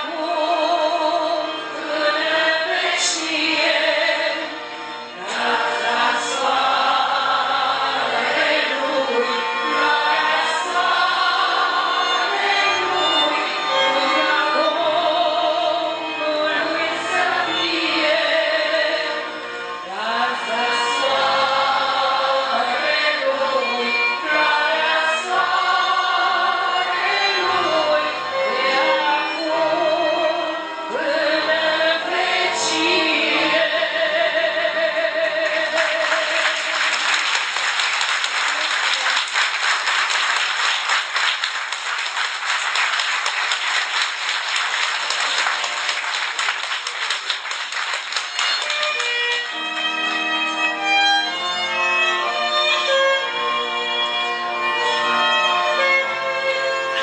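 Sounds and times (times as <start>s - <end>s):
woman singing folk song: 0.0s - 4.5s, 19.9s - 36.5s
violin: 0.0s - 57.0s
audience applauding: 35.4s - 49.6s.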